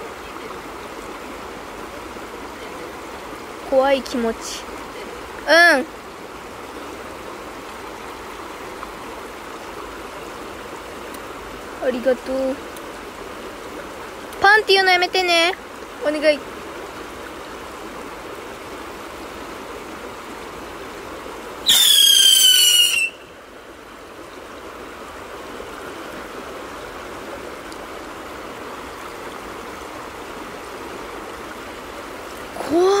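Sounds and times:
shallow river rushing: 0.0 - 33.0
whistling rocket firework: 21.7 - 23.2.

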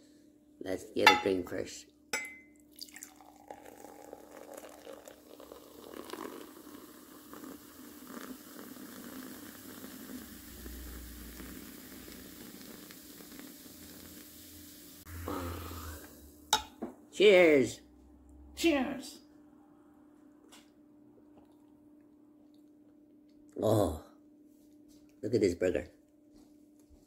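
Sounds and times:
liquid stream splashing into glass: 2.6 - 14.1
foam fizzing: 2.9 - 16.2.

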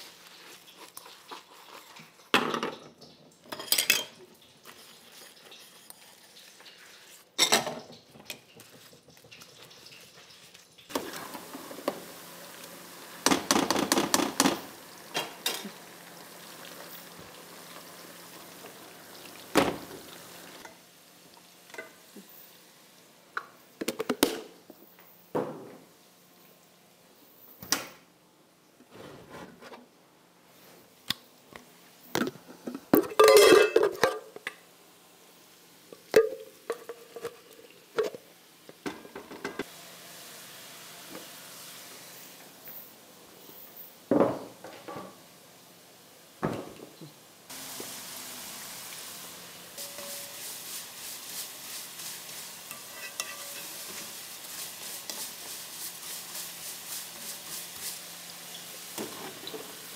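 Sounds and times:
pots and utensils clinking: 0.5 - 12.1, 13.2 - 15.8, 21.7 - 22.0, 32.2 - 34.6, 35.9 - 39.7, 49.8 - 51.0, 51.9 - 55.5
gas stove hiss: 9.8 - 23.8, 34.3 - 59.9
spoon scraping a metal tin: 52.7 - 53.8.

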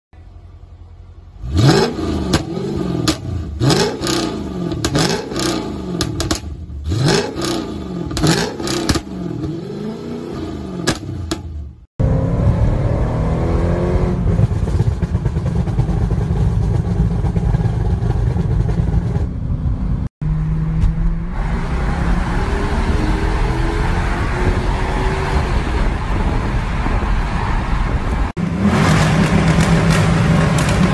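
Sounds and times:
engine drone under acceleration: 0.2 - 30.9
car engine revving: 1.2 - 27.3, 28.0 - 30.9
exhaust pops and crackles: 6.0 - 6.5, 28.6 - 30.9.

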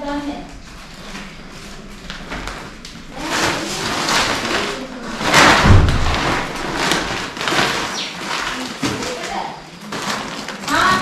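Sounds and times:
plastic sack rustling: 0.0 - 11.0
heavy thump: 5.2 - 7.0.

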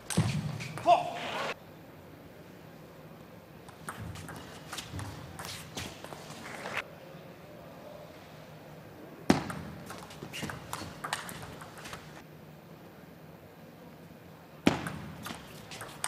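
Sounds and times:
table tennis ball clicking: 9.5 - 12.2.

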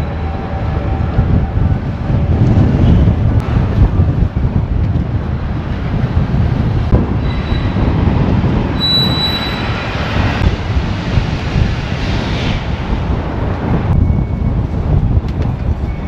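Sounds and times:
city street noise: 0.0 - 16.0
wind buffeting microphone: 0.0 - 16.0
high thin steady squeal: 8.8 - 10.0.

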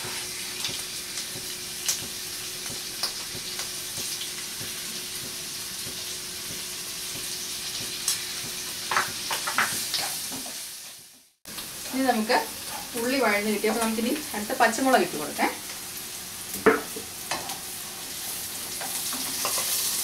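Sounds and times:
onions sizzling in hot oil: 0.0 - 20.0.

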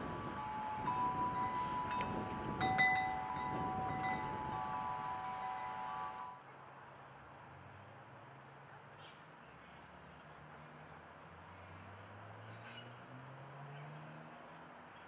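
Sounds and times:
chimes ringing: 0.0 - 6.4.

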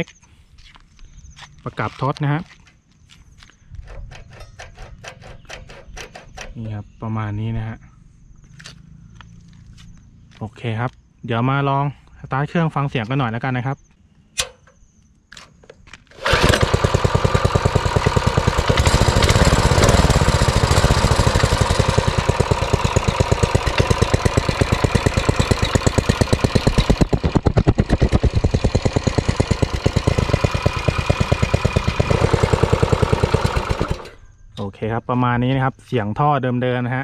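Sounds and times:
small engine running: 16.2 - 34.2.

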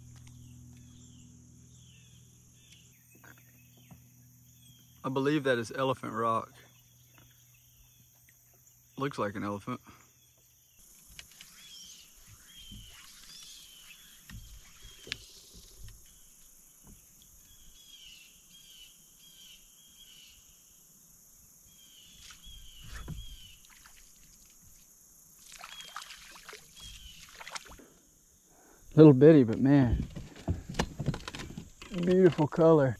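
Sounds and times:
bird chirping: 0.0 - 9.5, 10.1 - 20.8, 25.6 - 27.6
high insect hum: 0.0 - 32.9
paddle splashing water: 22.1 - 24.8, 25.4 - 27.8.

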